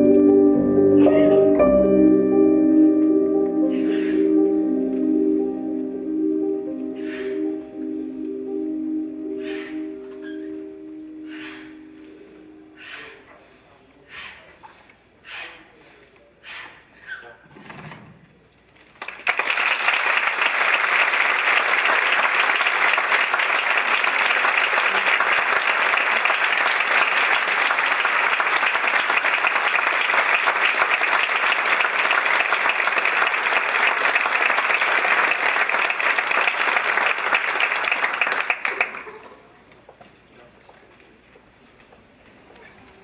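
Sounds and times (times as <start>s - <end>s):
audience applauding: 18.9s - 39.6s.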